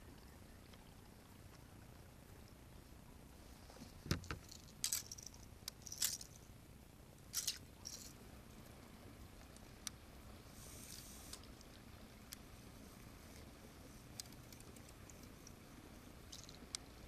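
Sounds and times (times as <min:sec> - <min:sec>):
fishing tackle clicks and rattles: 0:04.1 - 0:06.4, 0:07.3 - 0:08.2, 0:14.2 - 0:15.6, 0:16.2 - 0:16.9.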